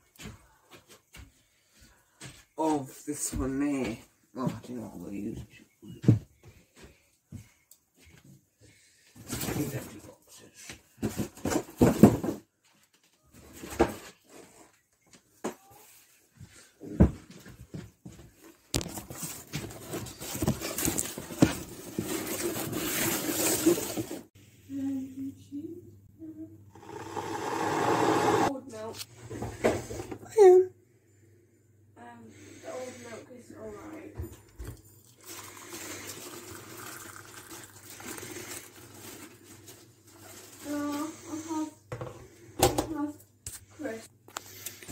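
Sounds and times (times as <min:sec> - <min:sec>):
cardboard boxes rustling and knocking: 0:11.0 - 0:12.5, 0:18.8 - 0:24.3
water pouring into mug: 0:35.0 - 0:38.6.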